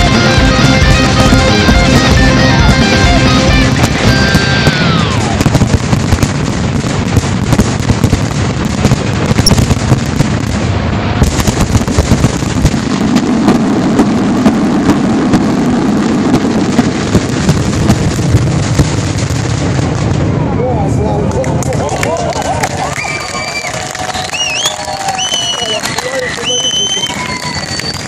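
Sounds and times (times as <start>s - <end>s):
music with falling glide: 0.0s - 5.0s
low rumble: 0.0s - 21.9s
fireworks bangs and crackling: 0.0s - 28.0s.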